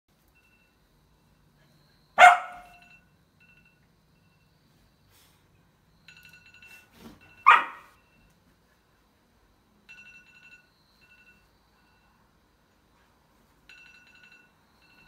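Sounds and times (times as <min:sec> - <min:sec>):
dog barking: 0:02.2 - 0:02.8, 0:07.4 - 0:08.0.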